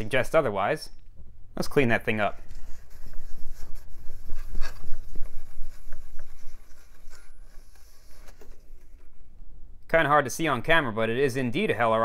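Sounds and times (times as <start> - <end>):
paper towel scrubbing metal: 2.4 - 8.6.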